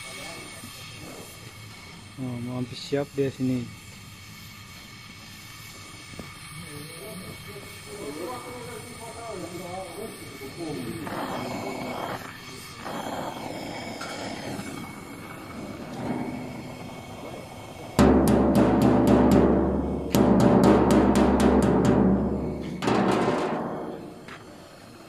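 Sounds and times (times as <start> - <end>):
welding torch hissing: 0.0 - 25.0
hammer striking metal tank: 15.9 - 24.4.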